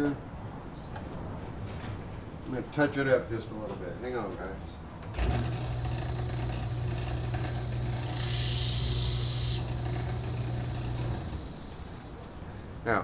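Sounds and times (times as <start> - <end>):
electric grinder humming: 5.2 - 12.4
steel grinding hiss: 5.2 - 12.4.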